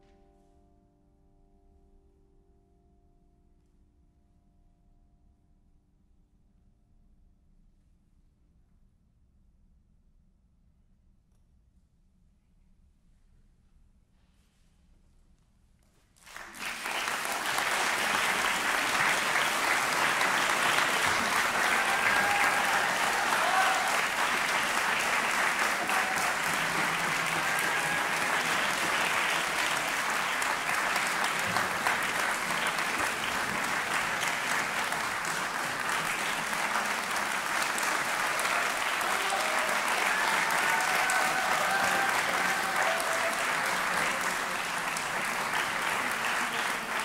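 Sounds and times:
audience applause: 0:16.2 - 0:47.0.

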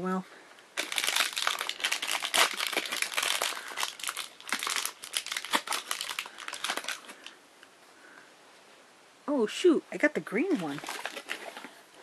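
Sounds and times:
plastic wrapper crinkling and tearing: 0:00.8 - 0:07.4, 0:10.5 - 0:11.8.

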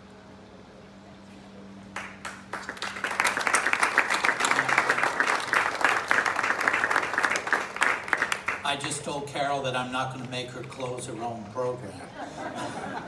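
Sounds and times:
audience applauding: 0:02.0 - 0:09.0.

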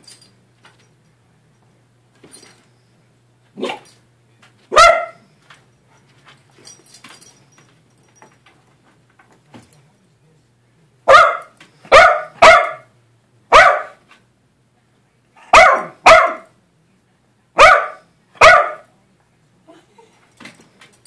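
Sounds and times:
small dog barking: 0:03.6 - 0:03.8, 0:04.7 - 0:05.2, 0:11.1 - 0:12.9, 0:13.5 - 0:14.0, 0:15.4 - 0:16.5, 0:17.6 - 0:18.9.

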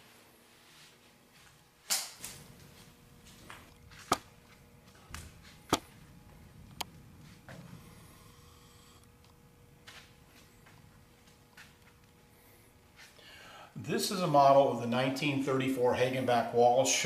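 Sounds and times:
sharp clicks and knocks: 0:03.5 - 0:06.0.

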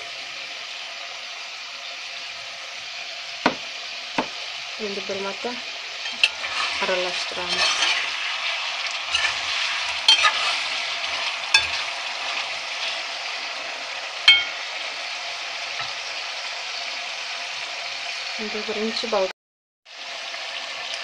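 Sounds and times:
meat sizzling in hot oil: 0:00.0 - 0:19.3, 0:19.9 - 0:21.0
ladle clinking against pot: 0:06.0 - 0:08.1, 0:09.1 - 0:13.0, 0:14.3 - 0:14.7.

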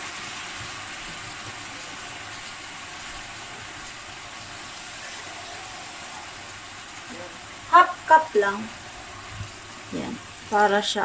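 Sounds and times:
meat sizzling in a pan: 0:00.0 - 0:11.0.

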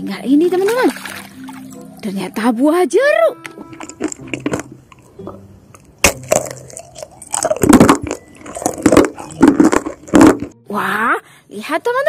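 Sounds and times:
biting into mandarin: 0:06.0 - 0:10.2
chewing: 0:06.2 - 0:10.0.

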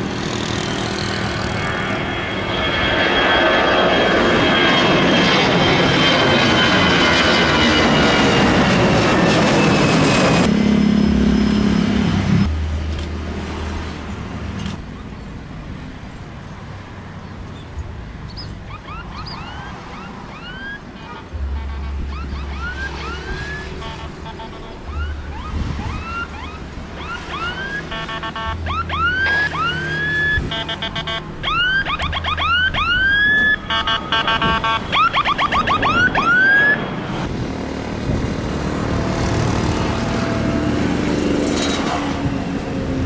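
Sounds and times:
jet engines roaring: 0:00.0 - 0:43.0
low hum: 0:01.3 - 0:14.5, 0:18.5 - 0:35.0
whistling chirps: 0:18.3 - 0:20.6.

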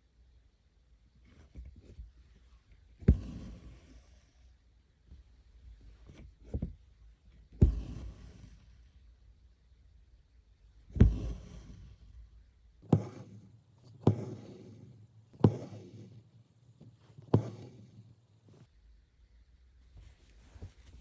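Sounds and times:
needle tapping through fabric: 0:03.0 - 0:04.0, 0:06.0 - 0:08.7, 0:10.9 - 0:12.0, 0:12.8 - 0:18.7
thread rustling through fabric: 0:12.8 - 0:18.7.

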